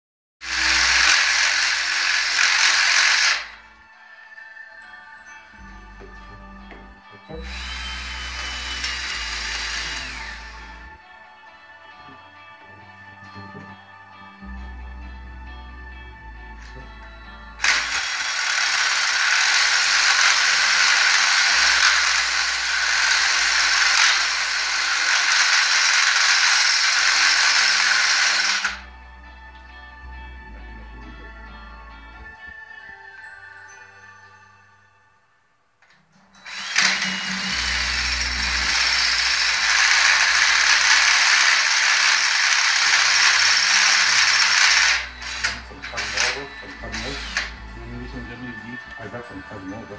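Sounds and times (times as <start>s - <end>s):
cordless drill whirring: 0.4s - 3.7s, 7.4s - 11.0s, 17.6s - 28.8s, 36.4s - 47.7s.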